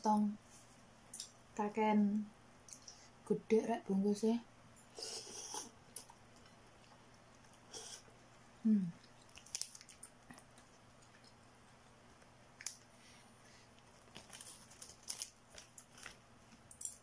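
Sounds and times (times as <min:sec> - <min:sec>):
person chewing noodles: 0:05.0 - 0:17.0
plastic packet crinkling: 0:09.2 - 0:10.7, 0:13.8 - 0:17.0.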